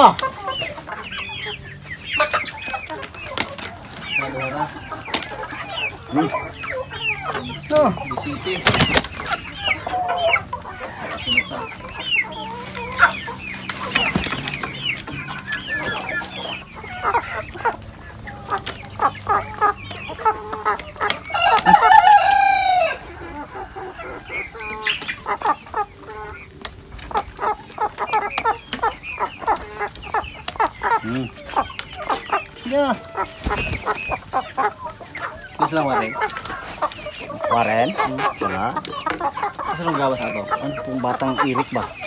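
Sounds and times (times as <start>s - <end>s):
chickens clucking: 0.0s - 42.0s
rooster crowing: 21.3s - 24.6s.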